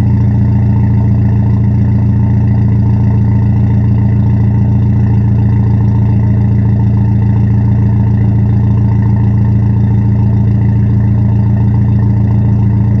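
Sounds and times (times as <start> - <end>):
car exhaust idling: 0.0 - 13.0.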